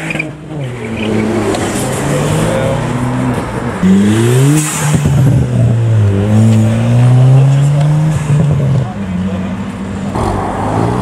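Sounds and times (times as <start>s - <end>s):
car engine accelerating: 0.0s - 11.0s.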